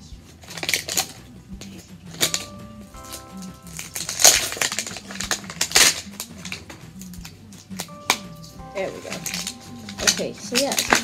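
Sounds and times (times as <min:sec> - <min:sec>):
quiet background music: 0:00.0 - 0:11.0
plastic wrap rustling and tearing: 0:03.9 - 0:06.7, 0:09.0 - 0:11.0.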